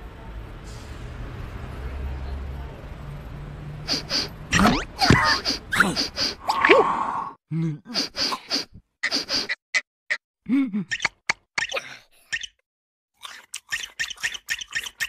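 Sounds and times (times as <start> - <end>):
cartoon character gasps and squeaks: 3.9 - 7.2, 7.8 - 9.6, 10.5 - 12.4.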